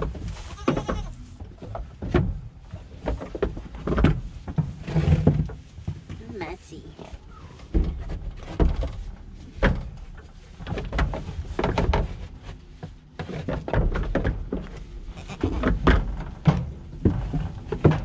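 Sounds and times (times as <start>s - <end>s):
hooves knocking on wooden boards: 0.0s - 6.2s, 7.0s - 18.0s
goats bleating: 0.4s - 1.2s, 15.1s - 15.7s.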